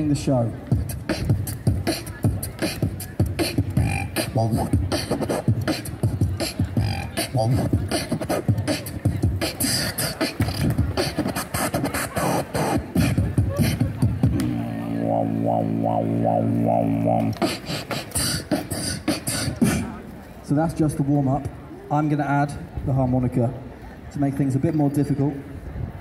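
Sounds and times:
amplified beatboxing: 0.7 - 20.0.

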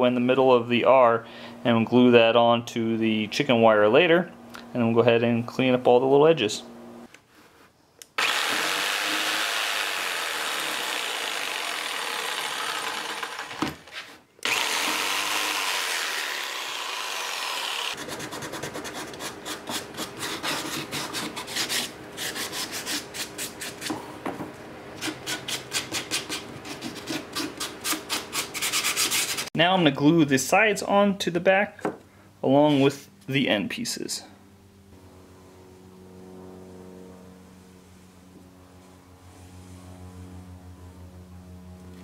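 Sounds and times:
jigsaw cutting: 8.2 - 23.0
sandpaper sanding strokes: 13.9 - 24.0, 25.0 - 29.5.

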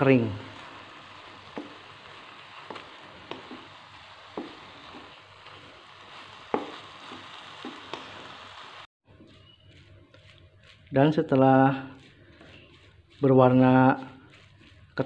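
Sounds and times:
mixture sizzling in a wok: 0.0 - 15.0
spatula knocking and scraping pan: 0.5 - 8.4.

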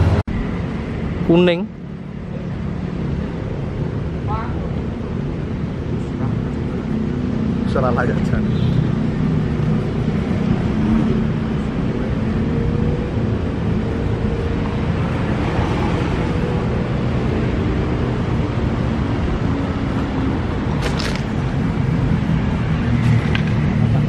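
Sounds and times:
road traffic noise: 0.0 - 24.0
train rumbling on track: 0.0 - 24.0.

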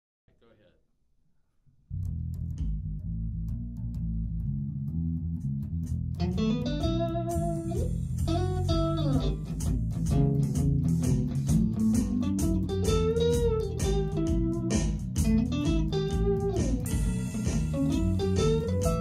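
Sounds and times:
bass guitar line: 1.9 - 19.0
electric guitar bending notes: 2.0 - 19.0
steady drum beat: 5.9 - 19.0.

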